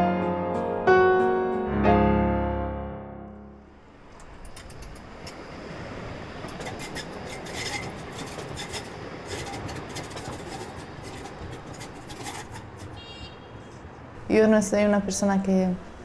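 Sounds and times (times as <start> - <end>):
tram wheels rumbling on rails: 3.9 - 13.2
sharp clicks and scrapes: 6.5 - 13.0.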